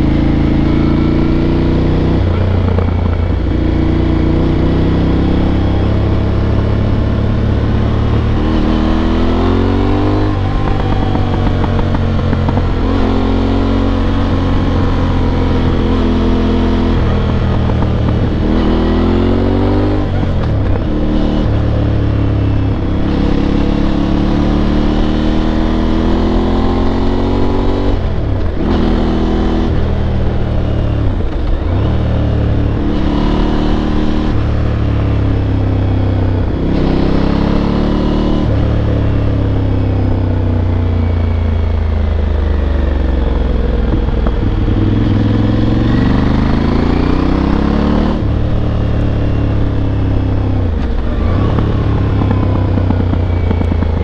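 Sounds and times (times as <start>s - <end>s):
motorcycle engine shifting gears: 0.0s - 54.0s.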